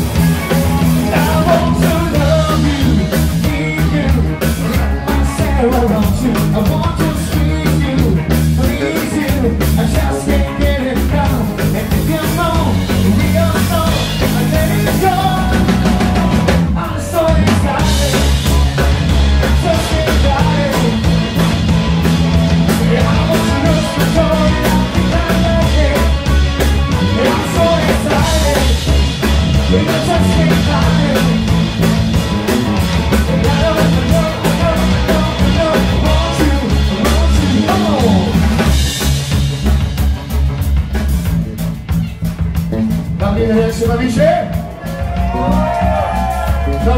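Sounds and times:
live rock band playing: 0.0s - 46.9s
person singing into microphone: 27.0s - 28.8s, 29.7s - 31.5s, 33.3s - 38.4s.

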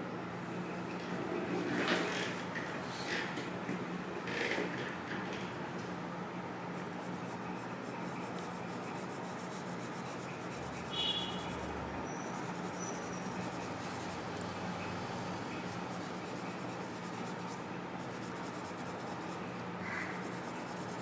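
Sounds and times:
pencil scratching on paper: 6.9s - 11.7s, 12.3s - 14.3s, 15.6s - 21.0s.

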